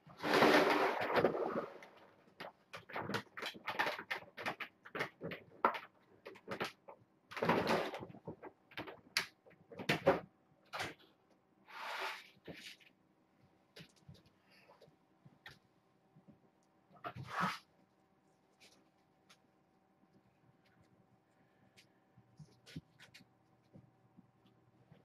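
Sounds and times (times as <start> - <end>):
objects clicking and knocking: 0.2 - 11.1.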